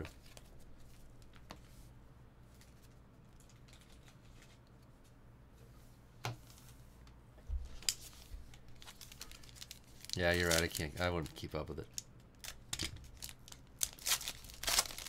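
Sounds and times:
trading cards clicking and rustling: 7.8 - 15.0.

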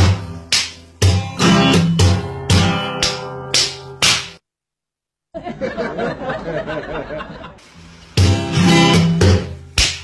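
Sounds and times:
acoustic guitar strumming: 0.0 - 4.1, 8.2 - 9.8.

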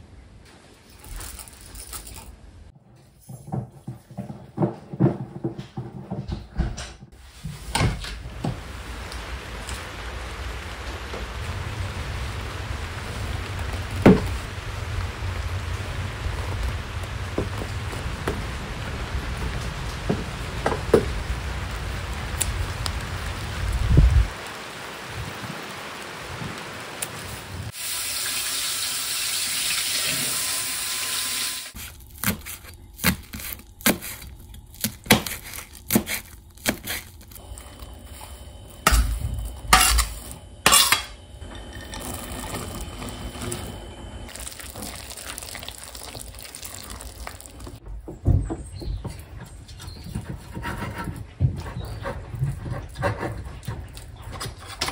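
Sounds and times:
footsteps on wet wooden deck: 7.2 - 25.5, 44.3 - 54.3
rain falling: 7.2 - 32.6, 41.3 - 47.8
tap running: 13.7 - 14.4.

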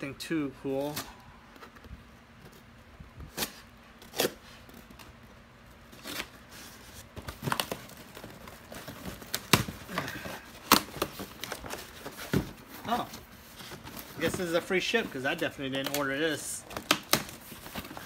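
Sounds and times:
cardboard rustling and knocks: 6.8 - 14.7
packing tape ripping: 15.8 - 18.0.

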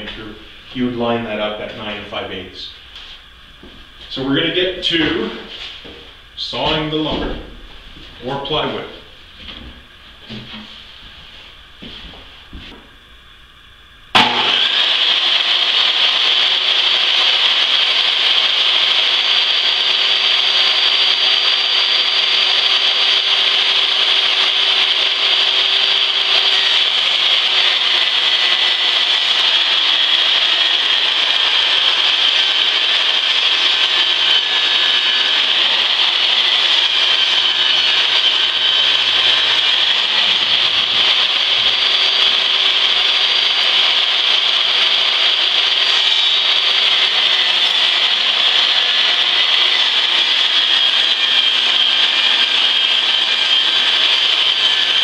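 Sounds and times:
table saw cutting wood: 14.1 - 55.0.

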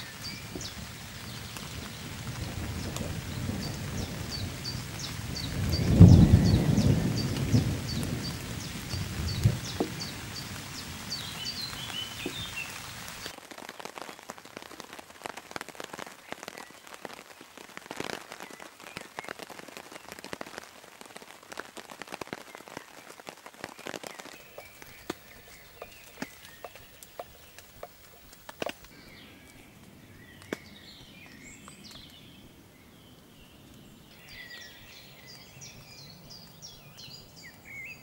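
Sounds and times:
thunder rumbling: 0.0 - 12.5
rain pattering on tarp: 0.0 - 38.0
steady rain: 0.0 - 38.0
bird chirping: 3.3 - 13.2, 24.2 - 38.0.

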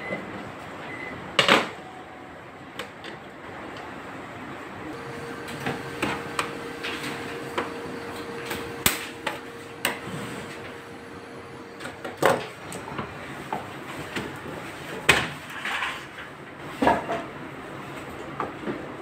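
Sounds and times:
faint steady hum: 4.8 - 12.8.

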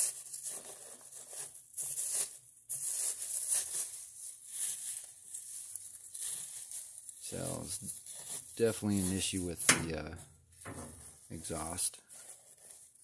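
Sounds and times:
paper rustling and crinkling: 0.0 - 13.0
poker prodding paper: 6.2 - 13.0.

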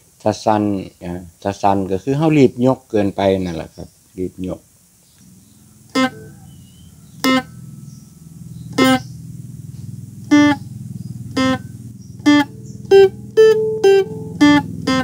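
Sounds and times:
plucked lute melody notes: 5.2 - 8.0, 8.7 - 9.2, 11.3 - 11.6, 12.2 - 15.0
droning string: 5.2 - 15.0.

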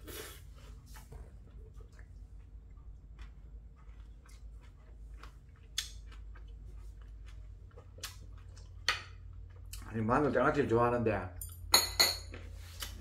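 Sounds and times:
person chewing food: 0.0 - 9.9.

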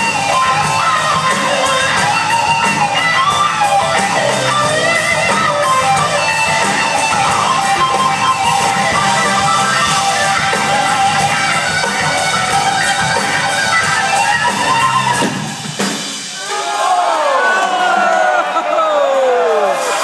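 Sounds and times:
electric guitar lead with bending notes: 0.0 - 16.0
live rock band playing: 0.0 - 20.0.

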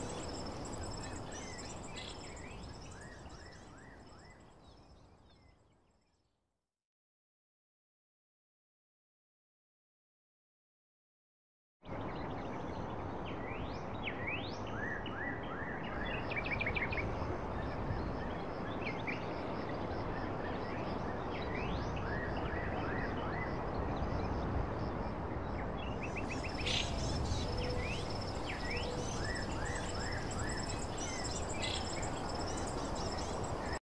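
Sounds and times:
small birds chirping: 0.0 - 5.6, 25.9 - 33.8.

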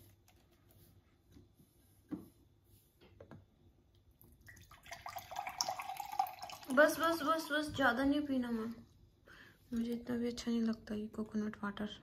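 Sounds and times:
liquid pouring into glass: 4.3 - 7.3.

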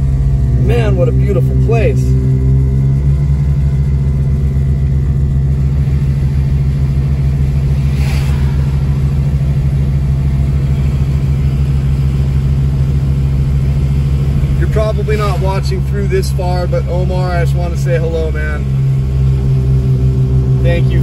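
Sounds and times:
air compressor pulsing drone: 0.0 - 21.0
brief rush of noise: 7.7 - 10.0.

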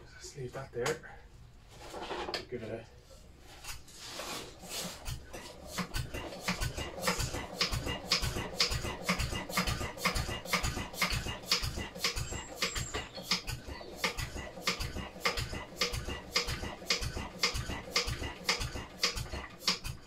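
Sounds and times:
engine turned over by hand: 4.6 - 20.0.

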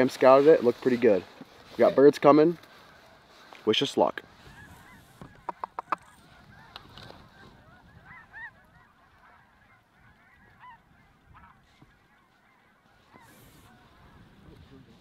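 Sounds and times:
geese honking: 4.1 - 14.4.

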